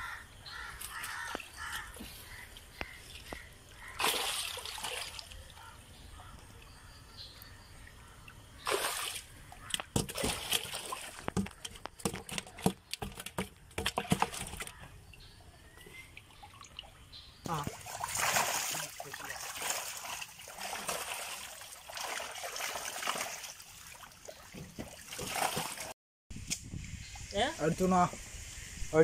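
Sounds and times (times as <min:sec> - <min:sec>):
water splashing and sloshing: 0:00.0 - 0:28.6
fish thrashing in water: 0:00.8 - 0:05.8, 0:08.4 - 0:15.2, 0:17.5 - 0:26.0.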